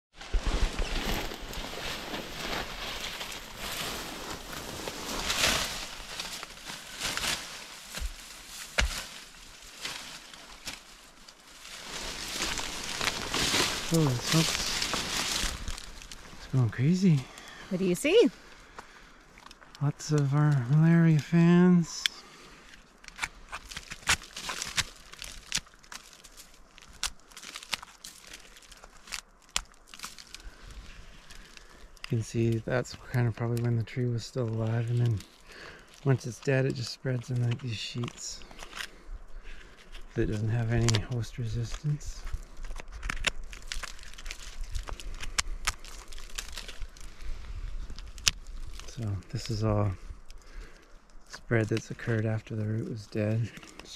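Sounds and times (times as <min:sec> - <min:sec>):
bark tearing with crackles: 0:23.0 - 0:30.6, 0:41.7 - 0:47.2, 0:47.8 - 0:49.5.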